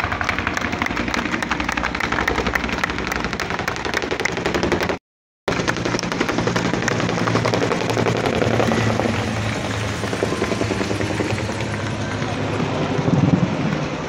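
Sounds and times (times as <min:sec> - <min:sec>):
crowd applauding and cheering: 0:00.0 - 0:04.9, 0:11.1 - 0:13.9.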